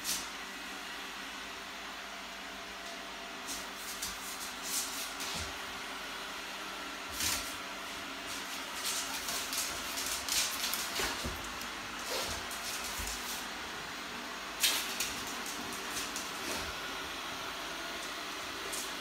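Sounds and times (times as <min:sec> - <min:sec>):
brush sweeping floor: 0:00.0 - 0:00.4, 0:03.4 - 0:05.7, 0:07.0 - 0:19.0.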